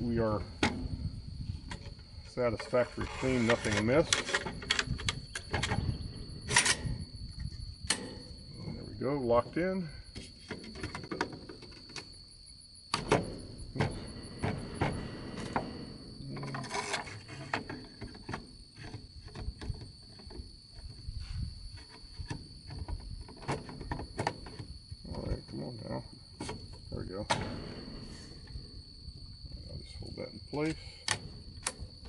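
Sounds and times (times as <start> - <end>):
high insect drone: 0.0 - 32.0
rifle metal clicks and knocks: 6.5 - 8.4, 31.0 - 32.0.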